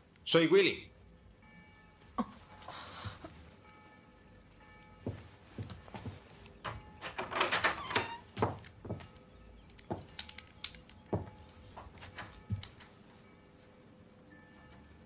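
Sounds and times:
door lock and latch clicking: 6.6 - 8.8.

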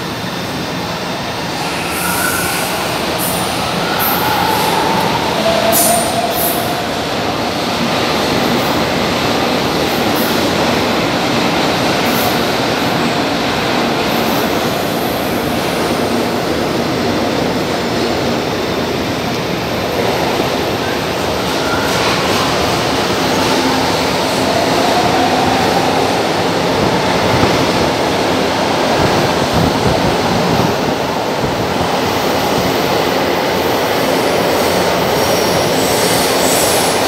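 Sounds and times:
train wheels rumbling on rails: 0.0 - 37.0
faint wheel squeal: 1.6 - 6.8.

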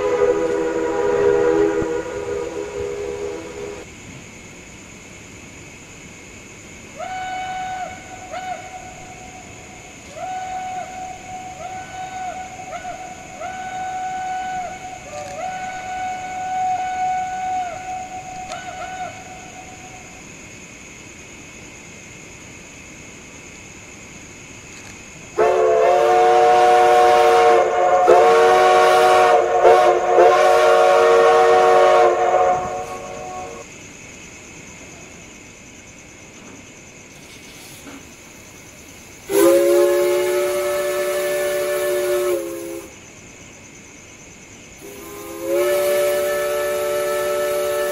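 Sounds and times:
steam locomotive whistle blasts: 0.0 - 3.9, 7.0 - 9.5, 10.1 - 20.1, 25.4 - 33.7, 39.3 - 43.0, 44.8 - 47.9
steady background hiss: 0.0 - 47.9.

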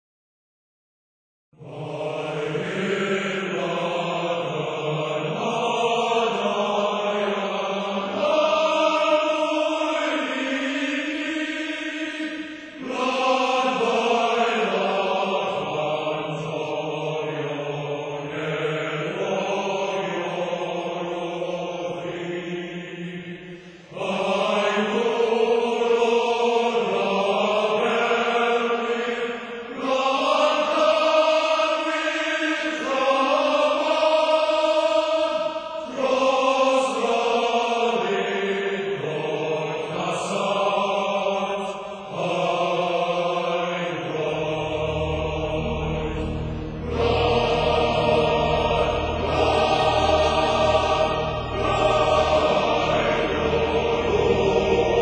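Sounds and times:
choir singing long notes: 1.6 - 55.0.

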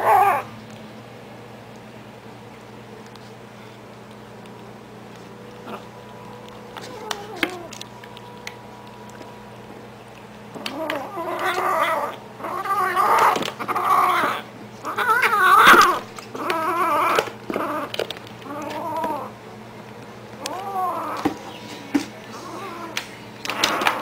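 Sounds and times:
kitten yowling: 10.6 - 17.9, 20.4 - 21.4.

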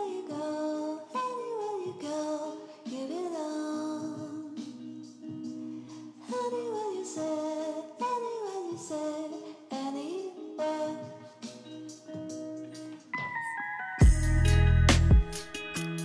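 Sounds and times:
person singing over chords: 0.0 - 11.8.

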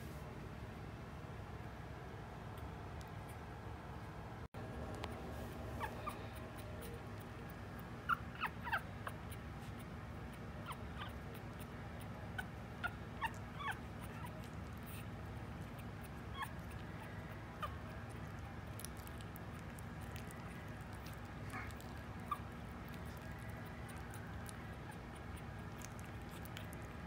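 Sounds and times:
low steady hum: 0.0 - 27.0
puppies squeaking and whimpering: 5.6 - 27.0.

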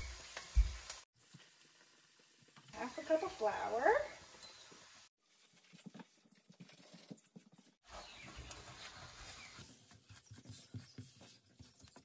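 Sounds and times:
spatula scraping a skillet: 7.2 - 12.0.

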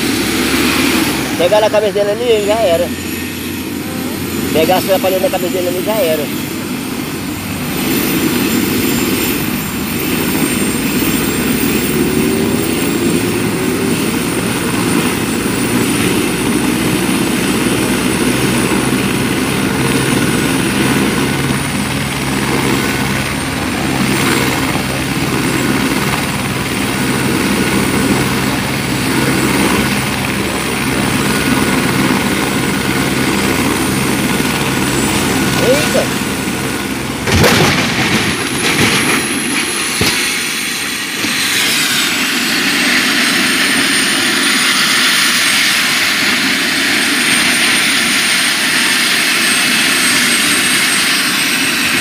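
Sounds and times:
helicopter turbine and rotor: 0.0 - 52.0
high whine: 0.0 - 52.0.

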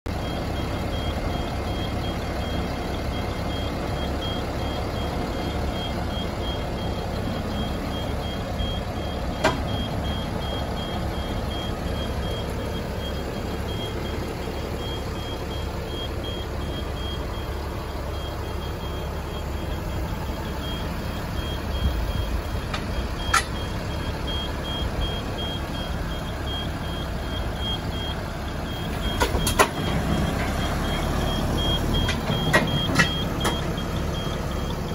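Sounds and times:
truck diesel engine running: 0.1 - 34.9
high electronic warning beep: 0.2 - 34.9.

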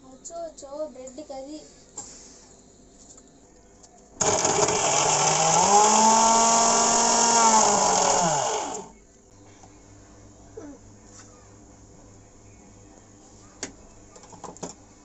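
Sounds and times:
mixer grinder motor whining: 4.2 - 8.9.

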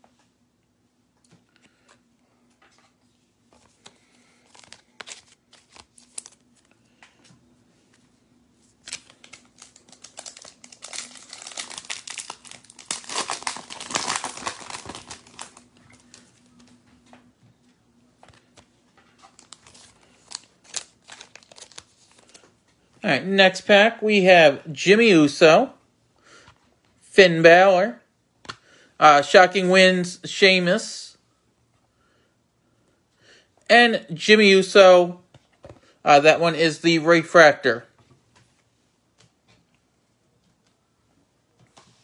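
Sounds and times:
foil wrapper crinkling and tearing: 4.4 - 6.7, 8.8 - 16.3, 19.3 - 22.4.

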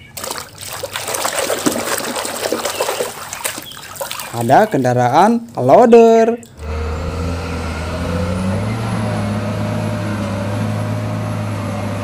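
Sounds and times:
diesel engine under load: 6.5 - 12.0.

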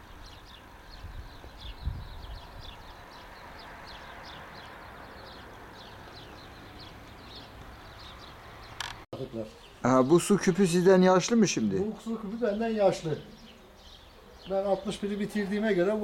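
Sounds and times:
small birds chirping: 0.0 - 16.0.

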